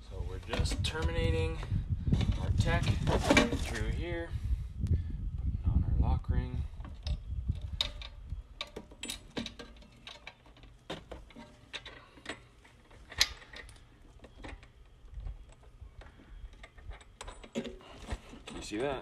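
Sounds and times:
light metallic clicks and scrapes: 0:06.8 - 0:19.0.

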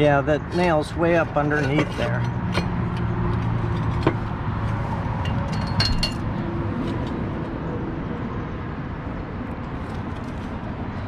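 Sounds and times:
clay roof tiles clinking: 0:00.5 - 0:04.2.

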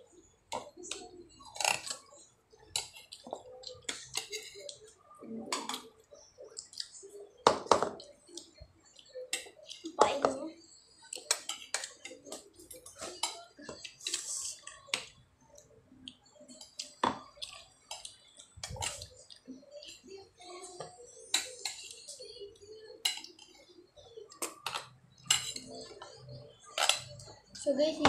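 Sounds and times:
cutlery clinking on plates: 0:24.4 - 0:26.0.

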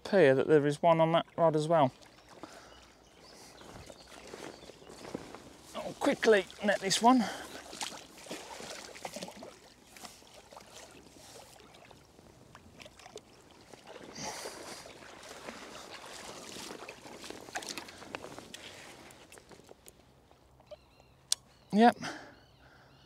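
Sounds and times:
water sloshing and splashing: 0:01.1 - 0:20.2
landing net drawn through water: 0:03.6 - 0:19.8.

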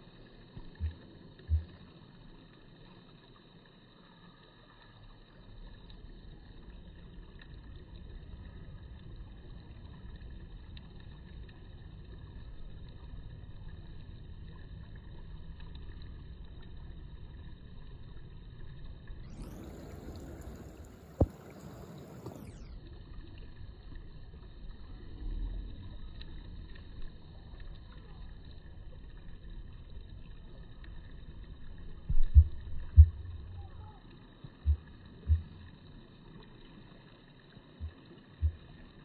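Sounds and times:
low rumbling noise: 0:06.4 - 0:36.2.

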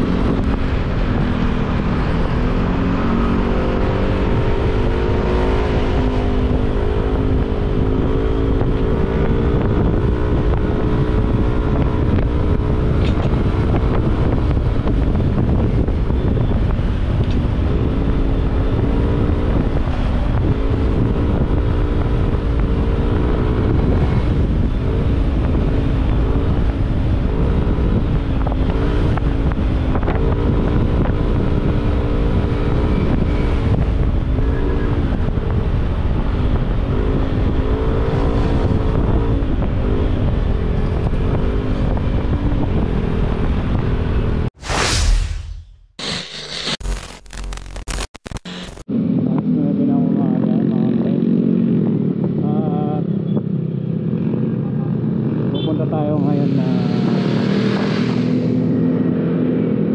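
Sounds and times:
wind noise on microphone: 0:00.0 - 0:45.7.

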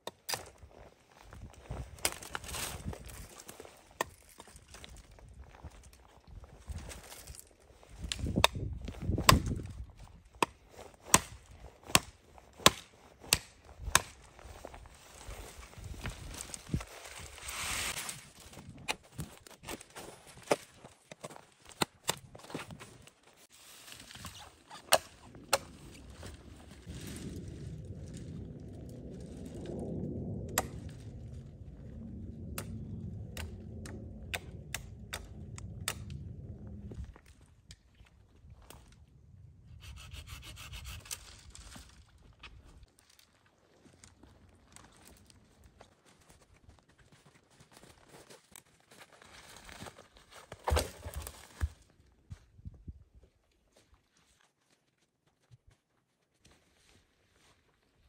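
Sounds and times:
twigs cracking and snapping: 0:00.0 - 0:22.8, 0:41.1 - 0:45.6
branches rustling: 0:00.4 - 0:30.0
knife chopping branches: 0:10.4 - 0:14.2
steady low rumble: 0:25.2 - 0:39.8.

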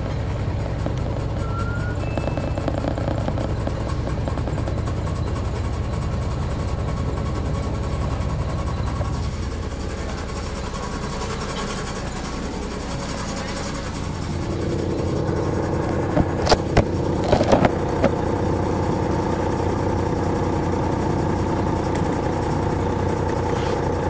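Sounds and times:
bus diesel engine drone: 0:00.0 - 0:24.0.

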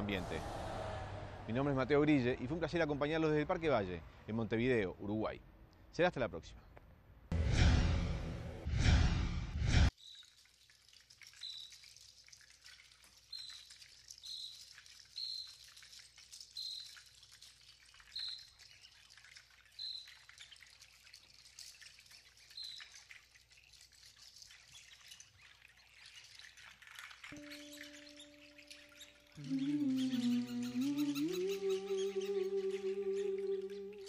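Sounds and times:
bird chirping: 0:19.7 - 0:20.2, 0:22.4 - 0:22.9, 0:24.5 - 0:34.0.

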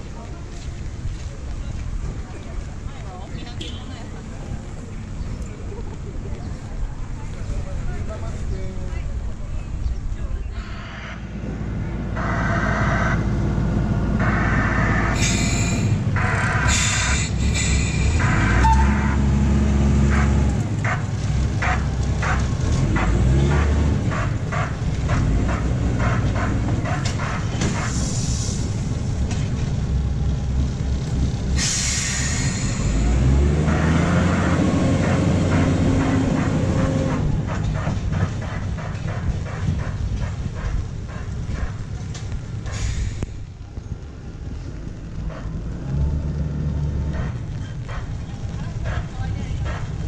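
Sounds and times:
train engine revving: 0:10.5 - 0:50.0
bursts of hissing: 0:15.1 - 0:18.4, 0:31.6 - 0:33.2
wheels clicking over rail joints: 0:15.2 - 0:50.0.

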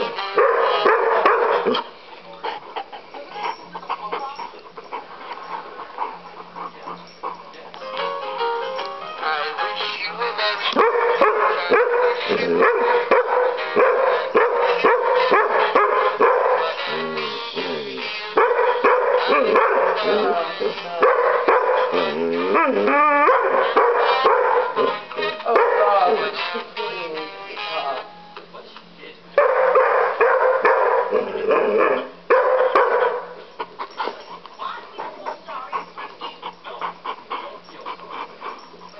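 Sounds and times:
dog barking: 0:00.4 - 0:01.9, 0:10.8 - 0:16.8, 0:18.4 - 0:20.4, 0:21.0 - 0:22.2, 0:23.2 - 0:26.0, 0:29.4 - 0:33.4.

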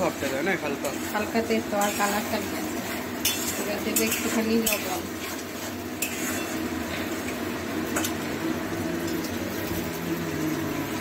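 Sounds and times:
sauce simmering and bubbling: 0:06.6 - 0:11.0.

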